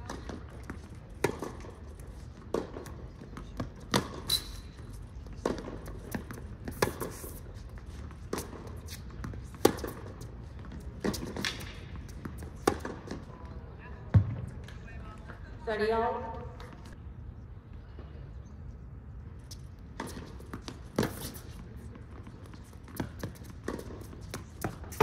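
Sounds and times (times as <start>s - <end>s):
racket hitting tennis ball: 0.0s - 13.3s, 20.0s - 21.6s, 22.5s - 25.0s
ball bouncing on hard court: 2.5s - 4.7s, 5.3s - 7.3s, 8.3s - 13.2s.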